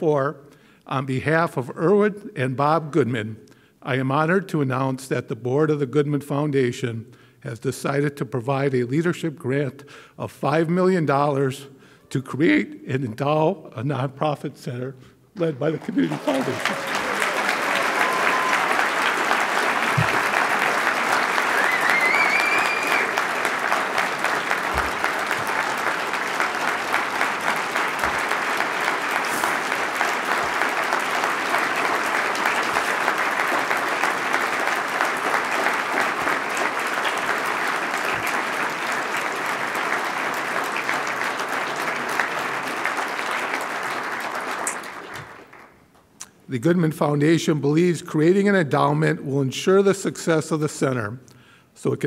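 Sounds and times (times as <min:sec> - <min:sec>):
audience applauding: 0:15.4 - 0:45.8
person cheering: 0:15.9 - 0:19.2, 0:21.4 - 0:23.2.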